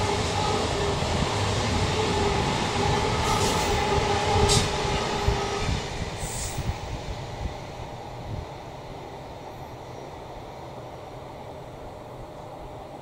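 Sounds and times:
rumble of train coaches: 0:00.0 - 0:13.0
train wheels squealing: 0:01.8 - 0:06.9, 0:09.5 - 0:10.4.

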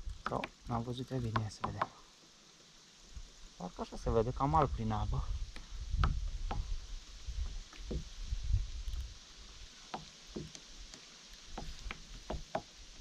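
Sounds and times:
knocks against kayak hull: 0:07.8 - 0:08.1.

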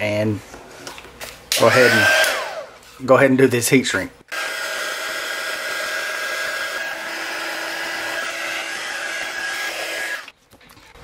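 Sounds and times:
heat gun blowing: 0:01.6 - 0:02.8, 0:04.3 - 0:10.3
motor whine: 0:04.3 - 0:10.3.

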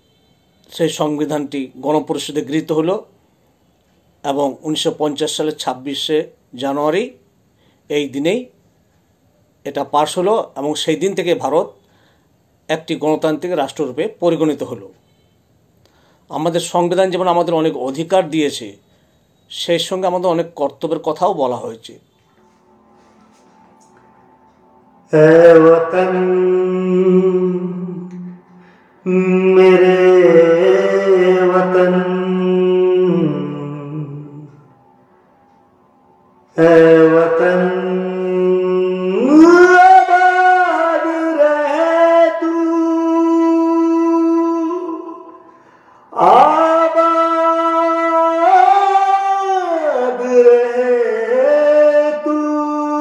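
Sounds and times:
man singing wordless phrases: 0:25.1 - 0:28.3, 0:29.0 - 0:34.6, 0:36.6 - 0:45.4, 0:46.1 - 0:53.0
man singing held notes: 0:25.1 - 0:34.7.

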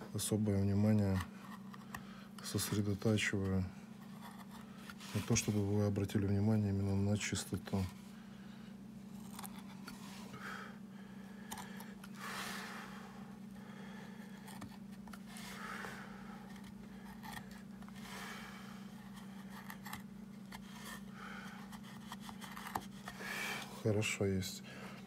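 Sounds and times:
steady low hum: 0:00.0 - 0:25.0
knife slicing and scraping wood: 0:16.4 - 0:18.0, 0:18.9 - 0:23.2.

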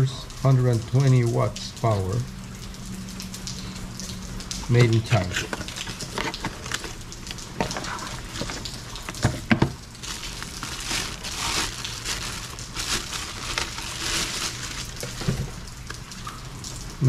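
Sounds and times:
plastic bag crinkling: 0:04.8 - 0:16.1
cardboard box being handled: 0:07.6 - 0:15.6.

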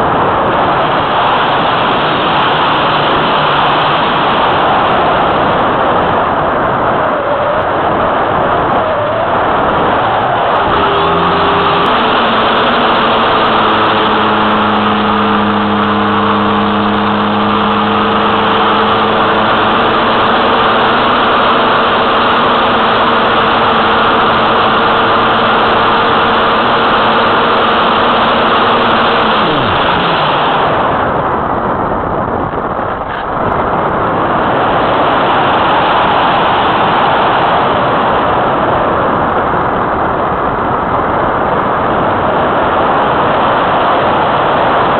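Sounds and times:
wind rushing: 0:00.0 - 0:44.9
electric motor and propeller hum: 0:10.5 - 0:31.2.

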